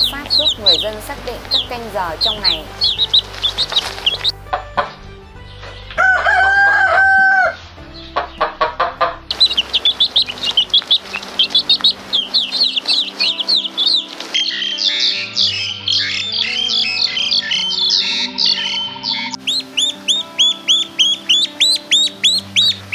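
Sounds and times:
chicks peeping: 0:00.0 - 0:04.4, 0:08.0 - 0:22.9
clucking: 0:00.0 - 0:04.9, 0:08.2 - 0:15.0, 0:19.4 - 0:22.9
rooster crowing: 0:06.0 - 0:07.6.

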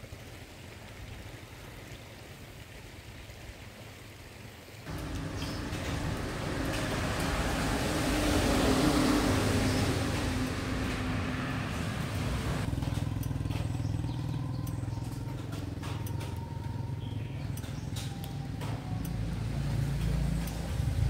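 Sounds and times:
rush of wind or road noise: 0:04.9 - 0:12.7, 0:19.6 - 0:21.0
vehicle engine running: 0:04.9 - 0:21.0.

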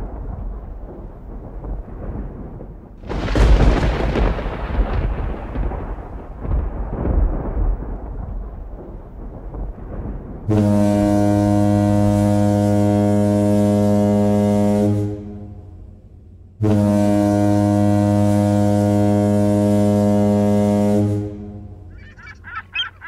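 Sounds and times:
low rumble: 0:00.0 - 0:12.3
deep horn blast: 0:10.5 - 0:21.9.

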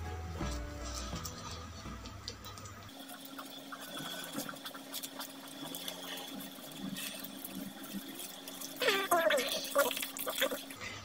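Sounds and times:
background music: 0:00.0 - 0:02.9.

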